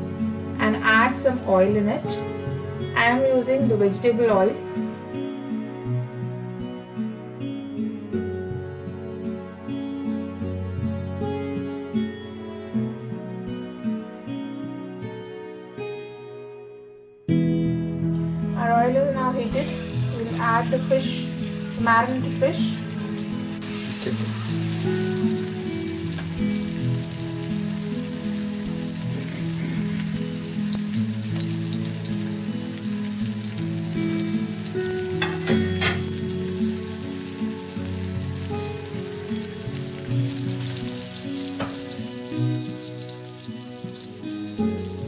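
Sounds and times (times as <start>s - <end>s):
fish sizzling in oil: 19.6s - 45.0s.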